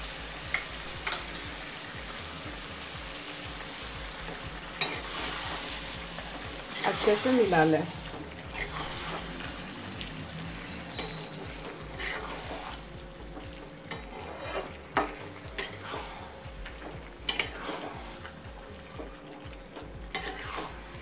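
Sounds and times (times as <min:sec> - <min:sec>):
chicken sizzling in oil: 0:00.0 - 0:21.0
spatula scraping pan: 0:04.8 - 0:09.7, 0:10.5 - 0:19.2, 0:20.1 - 0:21.0.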